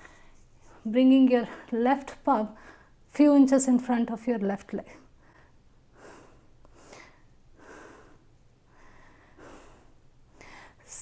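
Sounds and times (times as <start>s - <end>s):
woman breathing softly: 0.0s - 0.8s, 5.1s - 11.0s.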